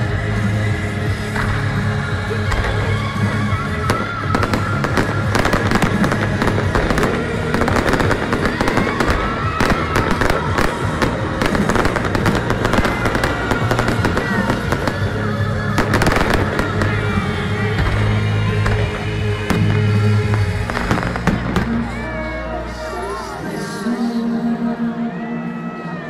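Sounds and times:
loud background music: 0.0 - 26.0
fireworks cracking and popping: 1.2 - 22.0.

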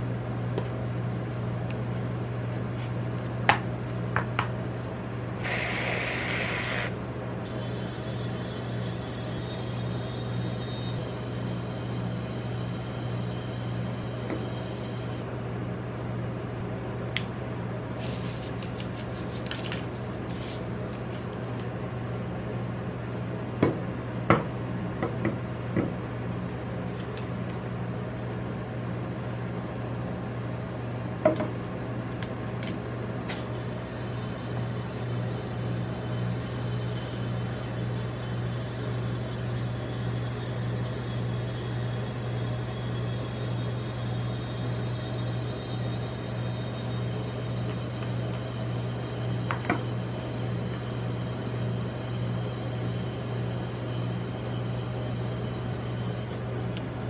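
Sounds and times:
low machine hum: 0.0 - 57.0
steady hiss: 5.4 - 6.9.

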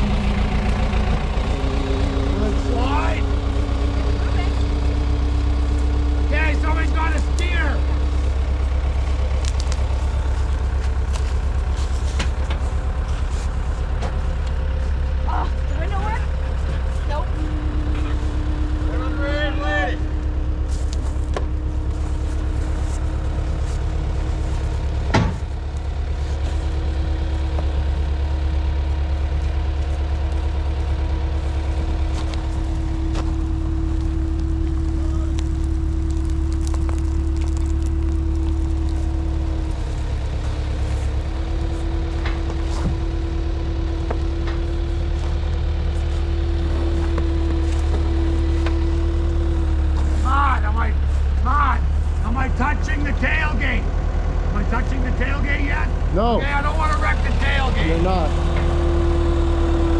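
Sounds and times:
engine running with whine: 0.0 - 59.9.

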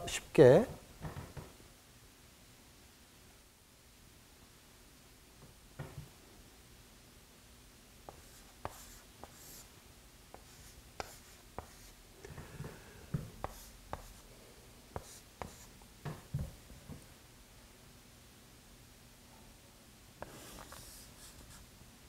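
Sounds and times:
chalk scratching on chalkboard: 8.1 - 9.7, 10.3 - 12.0, 13.4 - 14.2, 15.0 - 15.7, 20.2 - 21.6
chalk tapping on chalkboard: 8.1 - 9.7, 10.3 - 11.9, 13.1 - 14.2, 15.0 - 16.2.

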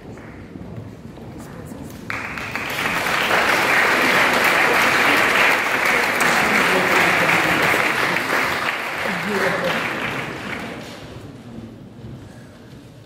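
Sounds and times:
audience applauding: 2.1 - 11.2.

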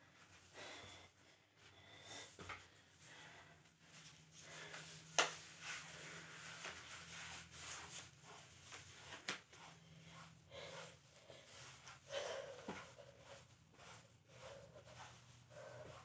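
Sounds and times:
breathing: 0.2 - 5.0, 9.6 - 16.0
feet shuffling on a mat: 1.6 - 16.0.

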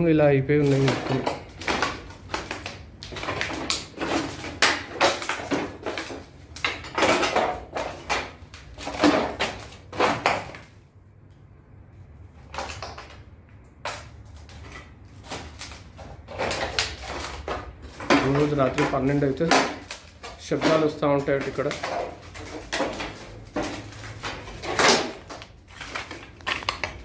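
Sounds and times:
footsteps crunching over rubble: 14.3 - 27.0.

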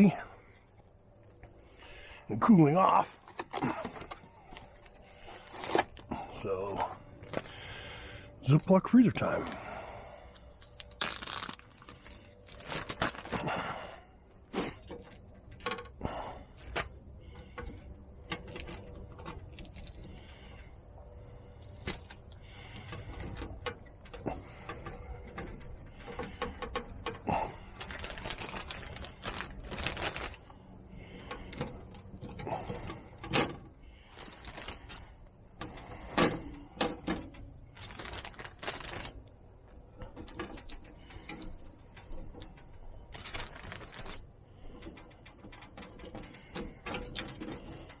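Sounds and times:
wire grate clicks and rattles: 8.4 - 48.0
plastic bag crinkling: 10.3 - 13.5, 27.7 - 30.5, 34.1 - 35.0, 37.8 - 39.3, 43.1 - 44.2.

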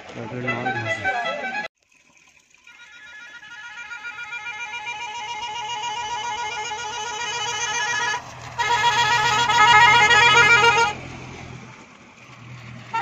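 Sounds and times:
warbling vehicle horn: 0.3 - 1.7, 2.6 - 11.1, 12.8 - 13.0.

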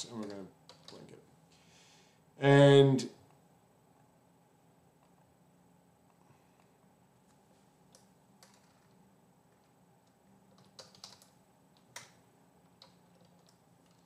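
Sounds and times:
faint keyboard typing: 0.0 - 1.2, 6.1 - 14.0.

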